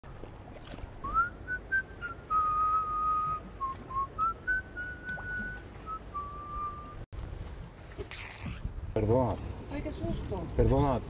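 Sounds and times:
person whistling a tune: 1.0s - 7.0s.

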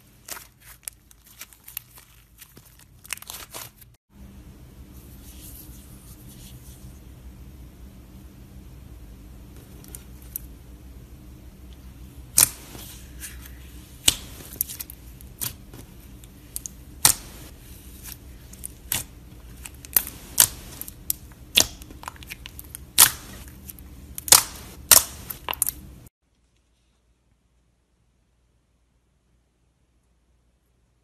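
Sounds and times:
faint low hum: 4.1s - 31.0s.

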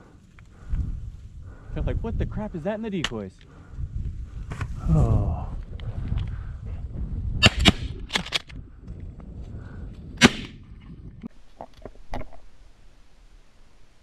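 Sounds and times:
shotgun shots: 7.4s - 8.3s, 10.2s - 10.6s.

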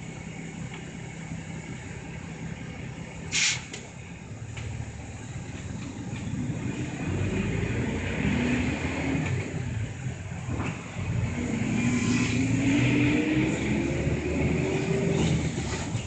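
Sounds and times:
bus engine accelerating: 0.0s - 16.0s.

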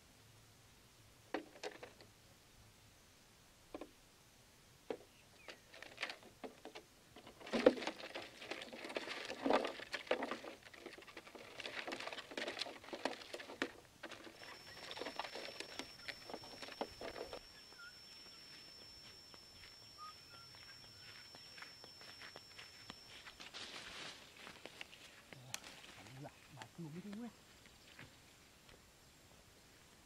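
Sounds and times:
thin high whistle: 14.4s - 23.4s.

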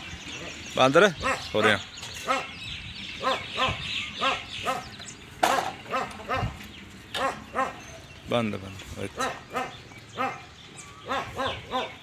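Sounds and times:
dog barking: 7.2s - 7.8s, 9.2s - 12.0s.

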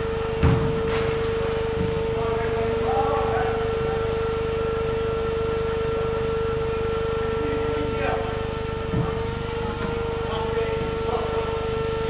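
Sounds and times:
loud electrical hum: 0.0s - 12.0s
football kick thud: 0.4s - 2.0s.

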